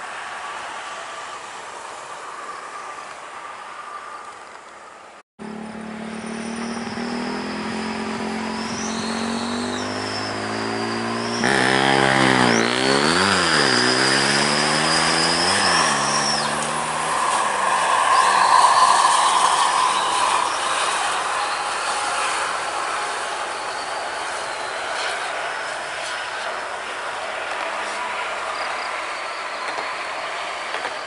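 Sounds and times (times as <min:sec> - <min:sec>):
coach diesel engine driving past: 0:05.4 - 0:23.8
high thin whine: 0:05.5 - 0:28.6.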